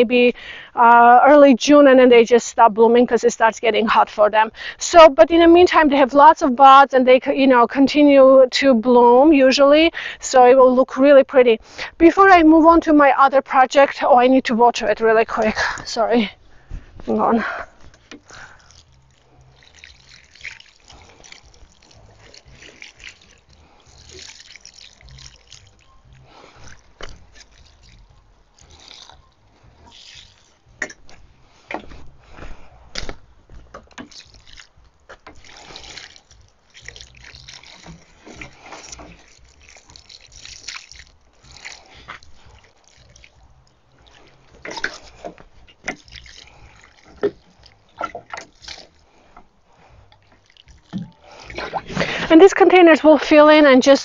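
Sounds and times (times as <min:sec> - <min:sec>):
water trickling from watering can: 0:17.4 - 0:54.0.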